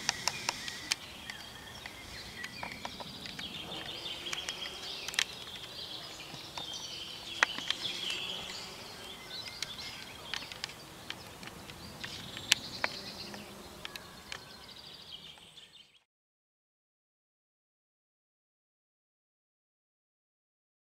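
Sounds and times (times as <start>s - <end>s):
sharp clicks: 0.0s - 5.8s
songbirds singing: 0.0s - 16.1s.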